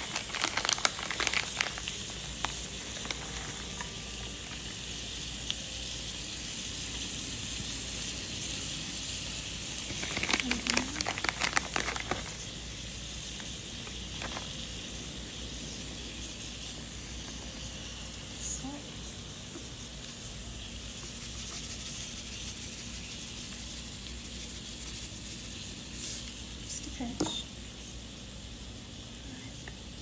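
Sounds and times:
plastic pouch rustling: 0.0 - 3.9, 9.8 - 12.5, 14.1 - 14.6
patty sizzling: 0.0 - 18.2, 19.4 - 26.6.

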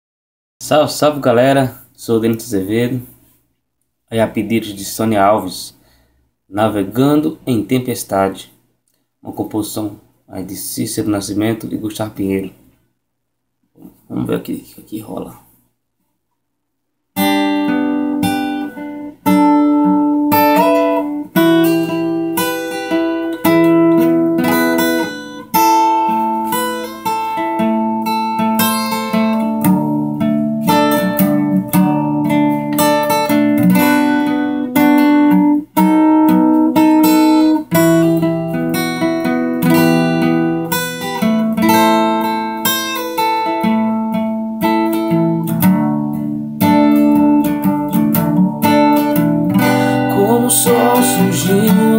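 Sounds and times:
acoustic guitar strumming: 17.2 - 51.9.

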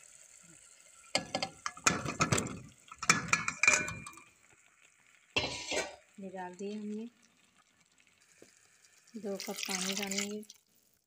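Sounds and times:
vegetables clattering into metal pot: 1.2 - 4.2.

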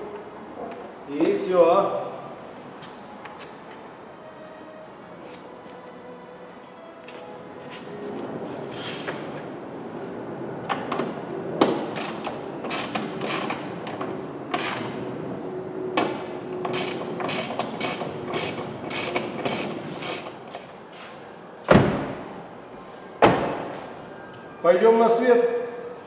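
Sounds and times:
ratchet wrench clicking: 12.0 - 13.6, 16.7 - 20.4.

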